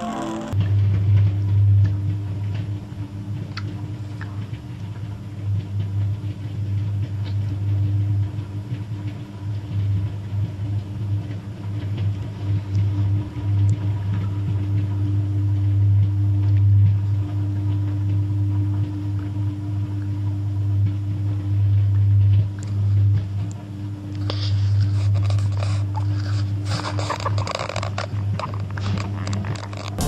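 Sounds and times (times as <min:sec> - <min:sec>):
faint crackles: 0:24.2 - 0:30.0.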